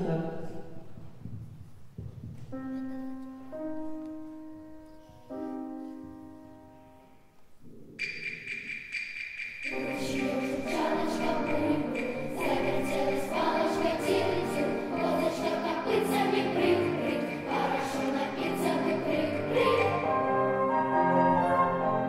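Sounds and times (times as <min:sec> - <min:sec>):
tapping percussion beat: 0:08.0 - 0:15.7
children's choir singing: 0:08.0 - 0:22.0.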